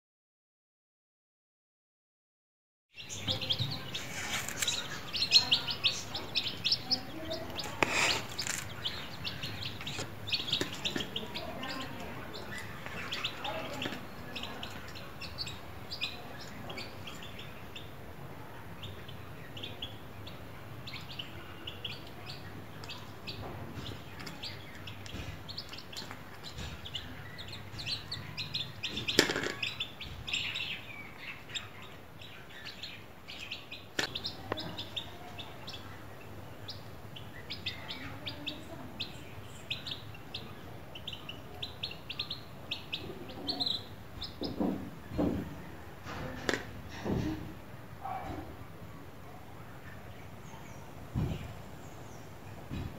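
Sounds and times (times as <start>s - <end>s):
chicks peeping: 3.0s - 52.9s
loud sharp noises: 3.2s - 14.9s.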